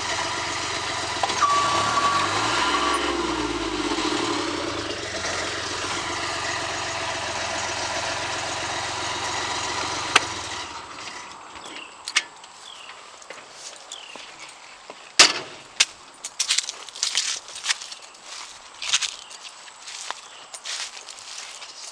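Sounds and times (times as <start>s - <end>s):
diesel engine idling: 0.0s - 11.5s.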